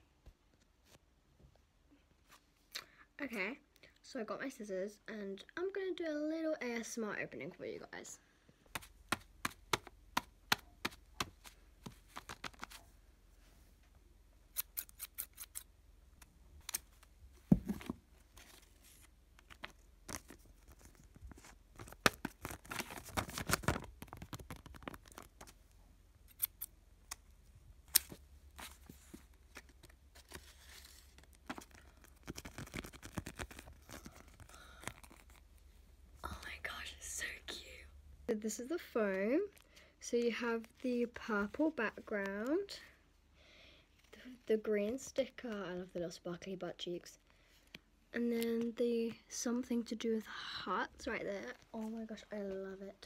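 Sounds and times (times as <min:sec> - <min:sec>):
paper rustling: 0:17.5 - 0:25.6, 0:27.9 - 0:35.4.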